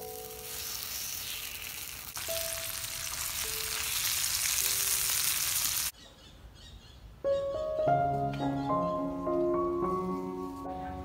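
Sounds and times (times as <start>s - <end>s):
meat sizzling on griddle: 0.0s - 5.9s.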